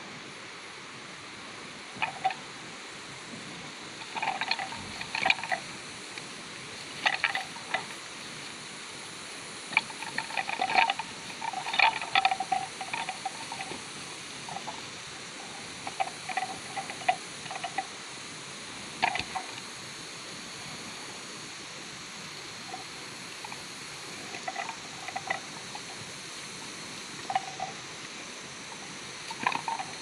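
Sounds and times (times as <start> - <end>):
steady hiss: 0.0 - 30.0
horns clacking together: 9.7 - 13.8.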